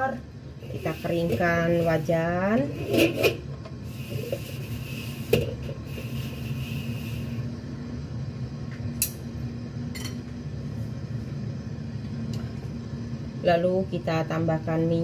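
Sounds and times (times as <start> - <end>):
stove rumble: 0.0 - 15.0
cloth wiping wok: 0.6 - 7.4.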